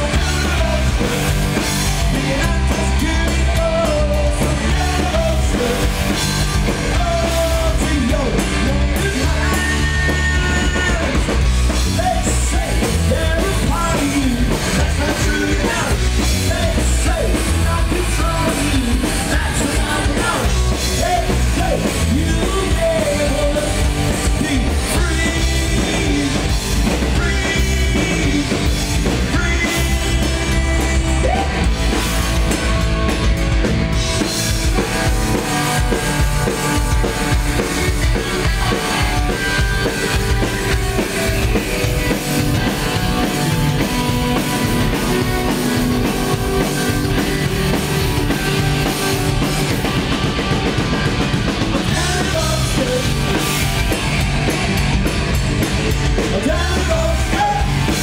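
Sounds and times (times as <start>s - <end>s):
man singing into a microphone: 0.0s - 31.7s, 51.7s - 53.7s, 56.2s - 58.0s
punk rock band playing: 0.0s - 58.0s.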